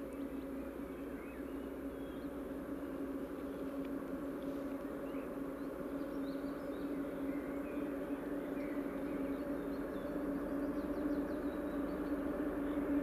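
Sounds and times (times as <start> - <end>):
small birds chirping: 0.0 - 2.6, 4.4 - 13.0
distant diesel locomotive drone: 0.0 - 13.0.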